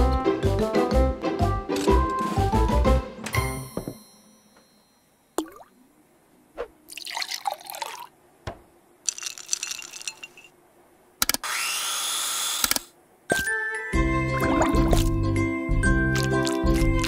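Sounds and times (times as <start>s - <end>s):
music: 0.0s - 4.4s, 13.3s - 17.0s
wet liquid sound: 16.1s - 17.0s.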